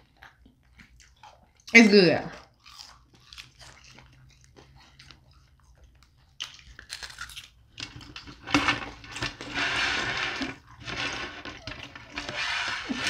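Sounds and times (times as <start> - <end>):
crisp crust crackling and crunching: 2.6 - 5.2, 6.4 - 8.4.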